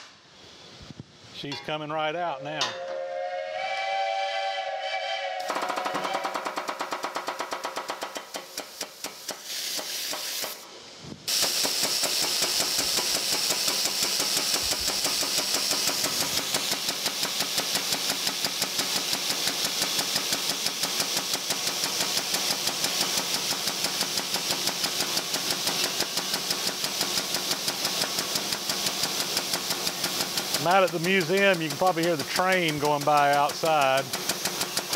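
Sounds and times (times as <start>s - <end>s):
hydraulic pump pulsing with air hiss: 8.1s - 34.9s.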